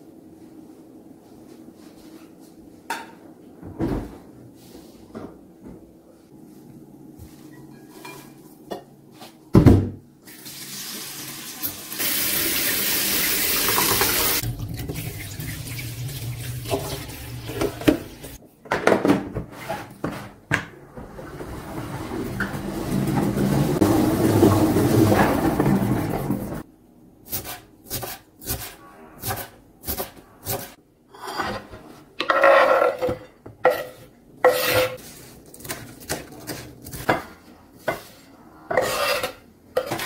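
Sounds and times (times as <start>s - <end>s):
tap water running: 10.2s - 18.4s, 21.0s - 26.6s.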